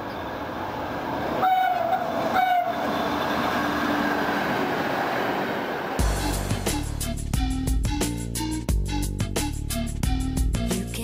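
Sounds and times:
diesel engines running: 0:00.0 - 0:07.2
train horn blasts: 0:01.4 - 0:04.1.

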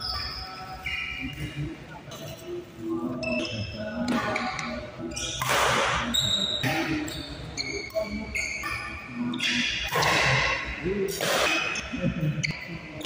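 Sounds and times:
shoes squeaking on court: 0:03.2 - 0:10.7
rackets hitting shuttlecock: 0:09.4 - 0:11.9.

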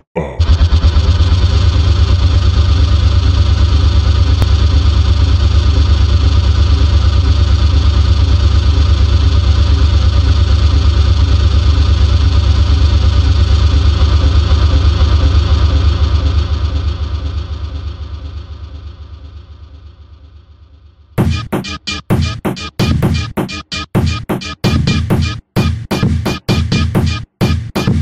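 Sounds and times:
low rumbling drone with flutter: 0:00.4 - 0:20.5.

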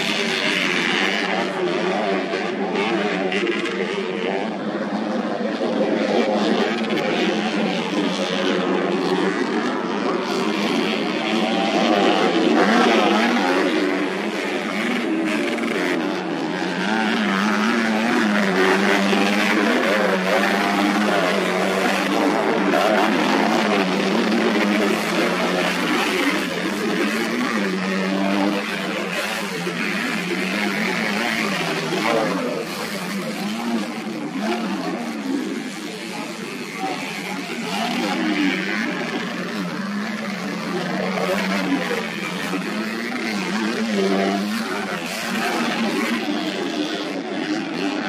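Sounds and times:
motorcycle engines revving: 0:00.0 - 0:48.0.

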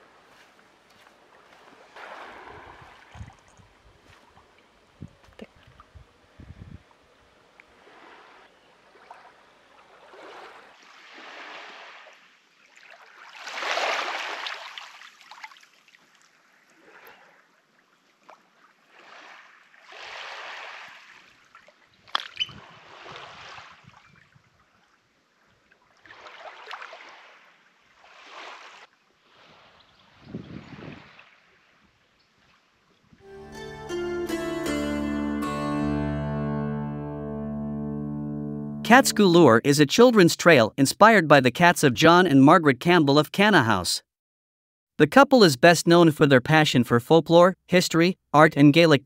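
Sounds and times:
small waves lapping on shore: 0:00.0 - 0:33.2.

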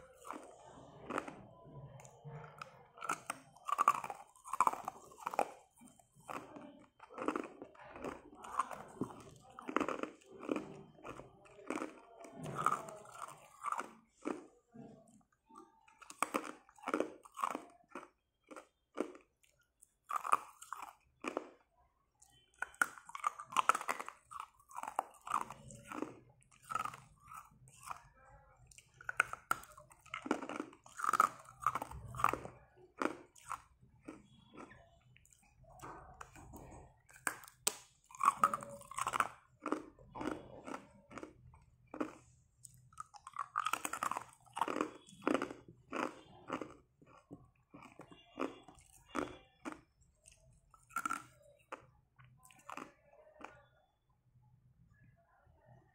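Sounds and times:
ice being crunched by teeth: 0:43.0 - 0:49.8.

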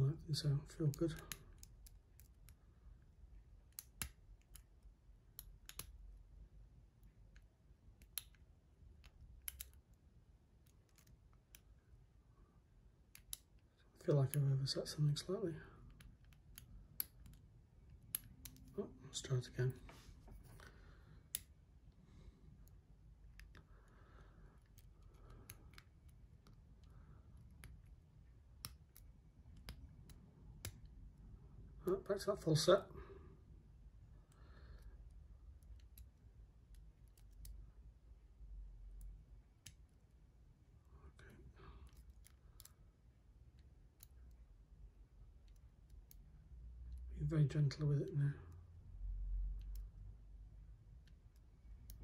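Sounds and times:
lock pick metallic clicks: 0:09.0 - 0:09.9.

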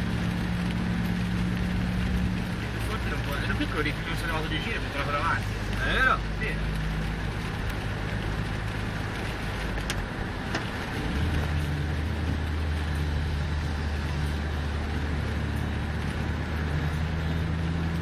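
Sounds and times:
car engine drone: 0:00.0 - 0:18.0
road and tyre noise: 0:00.0 - 0:18.0.

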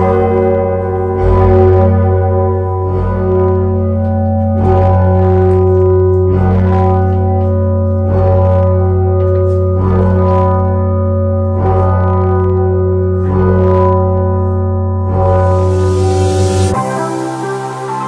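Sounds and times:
tower bells ringing: 0:00.0 - 0:18.0
steady low hum: 0:14.4 - 0:18.0.

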